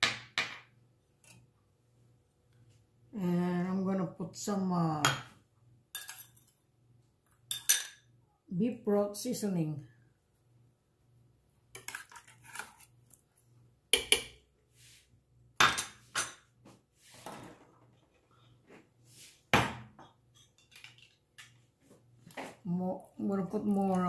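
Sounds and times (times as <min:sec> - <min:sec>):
metal spoon clinking on crockery: 0:06.0 - 0:06.5, 0:07.5 - 0:08.0.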